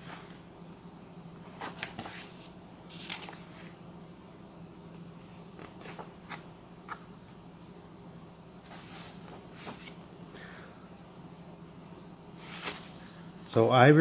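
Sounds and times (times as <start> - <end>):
book pages turning: 1.5 - 3.8, 5.6 - 7.1, 8.6 - 10.0, 12.4 - 13.0.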